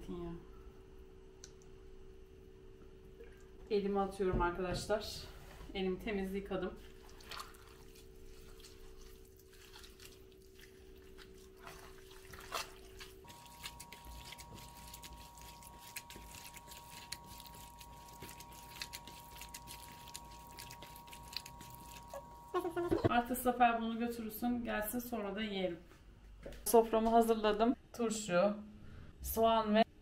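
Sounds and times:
hand kneading wet meat filling: 6.8s - 22.9s
steady hum: 12.8s - 23.5s.

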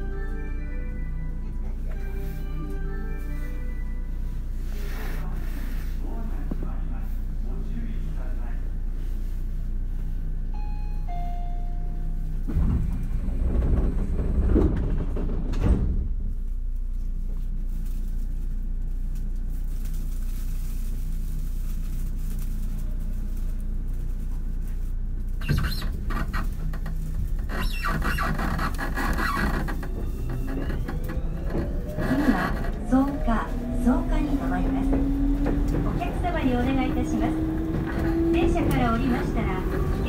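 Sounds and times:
electric train running rumble: 0.0s - 40.0s
wheels squealing on rails: 29.8s - 40.0s.

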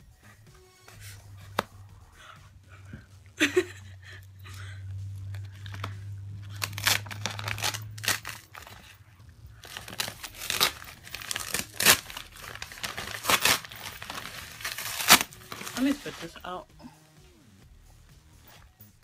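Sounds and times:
plastic bag tearing and crinkling: 5.3s - 16.5s.

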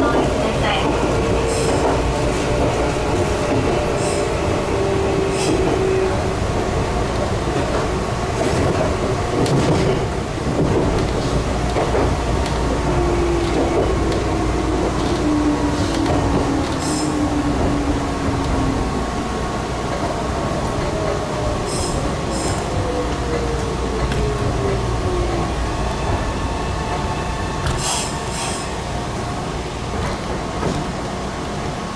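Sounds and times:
train wheels rumbling on rails: 0.0s - 31.9s.

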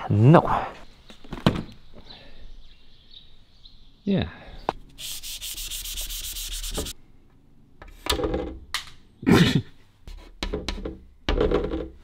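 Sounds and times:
chalk scratching on a blackboard: 5.0s - 7.0s, 10.1s - 10.6s.

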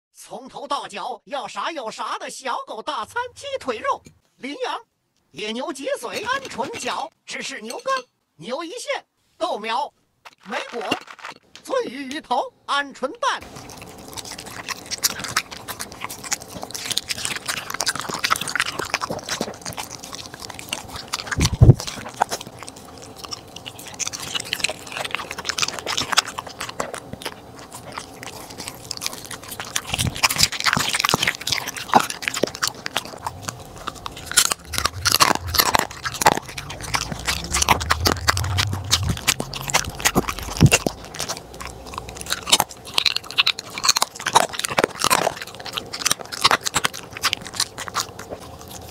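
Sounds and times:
dog chewing meat: 5.8s - 8.0s, 13.4s - 48.9s.

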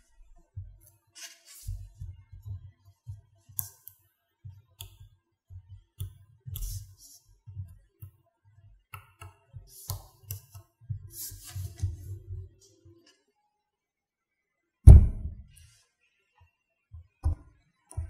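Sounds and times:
dull handling thuds: 14.9s - 15.5s.

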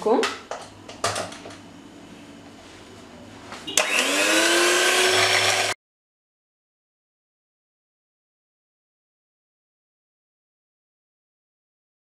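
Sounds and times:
electric hand mixer whining: 3.8s - 5.8s.

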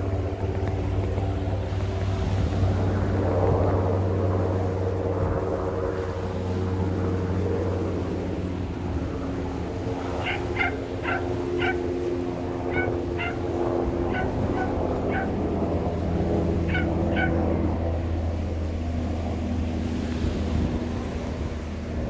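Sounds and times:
engine drone: 0.0s - 22.0s
bird calling short sharp notes: 10.2s - 11.8s, 12.7s - 13.4s.

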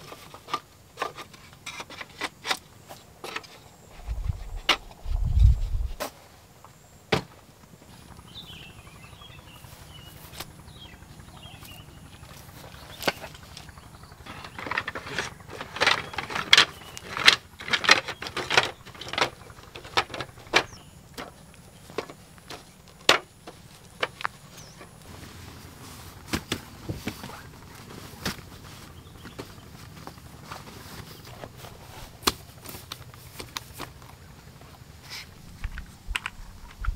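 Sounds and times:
faint steady background noise: 0.0s - 36.9s
objects being handled clicking: 12.9s - 25.0s, 35.6s - 36.9s.

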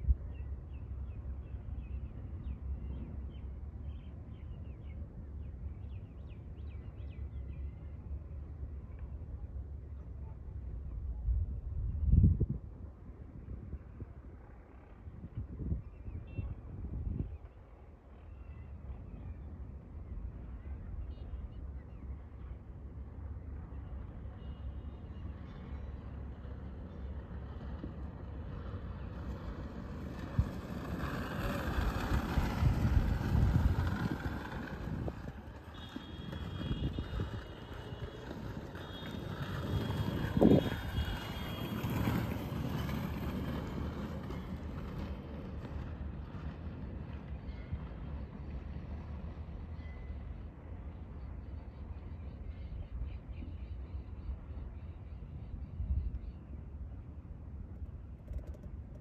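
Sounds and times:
wind rumble on microphone: 10.2s - 18.1s, 27.1s - 48.0s, 52.5s - 59.0s.

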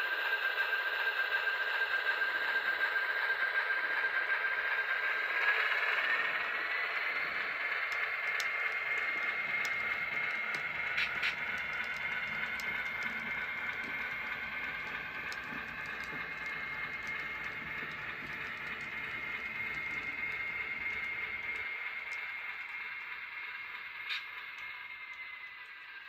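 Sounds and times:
model train motor whine: 0.0s - 26.0s
wheels rattling on rails: 4.7s - 26.0s
wheels clicking over rail joints: 5.4s - 25.3s.

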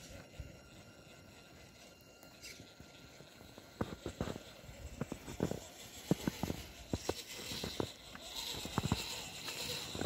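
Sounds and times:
faint electric motor whine: 0.0s - 10.0s
footsteps crunching in snow: 3.3s - 10.0s.

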